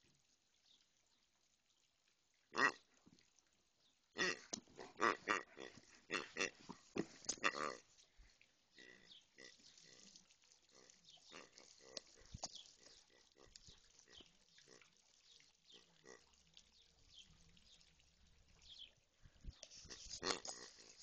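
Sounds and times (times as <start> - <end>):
toy pig grunting: 4.2 - 7.8, 20.0 - 21.0.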